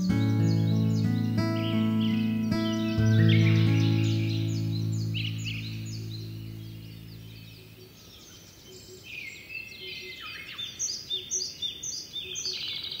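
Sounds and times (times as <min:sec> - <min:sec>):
low music chord: 0:00.0 - 0:07.9
small birds chirping: 0:00.0 - 0:13.0.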